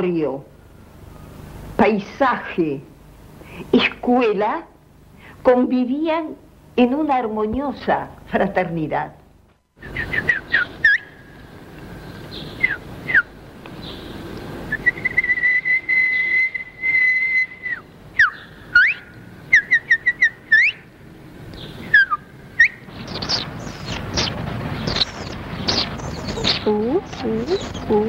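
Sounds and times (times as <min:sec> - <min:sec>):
person whistling bird calls: 0:09.8 - 0:11.2, 0:12.6 - 0:13.3, 0:14.7 - 0:20.8, 0:21.9 - 0:22.8.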